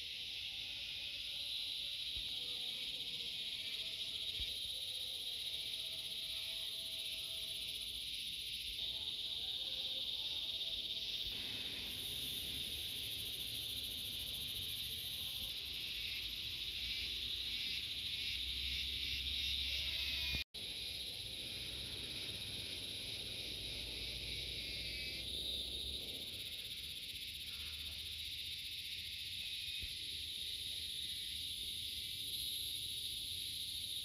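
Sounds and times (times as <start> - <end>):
insects chirring: 0.0 - 34.0.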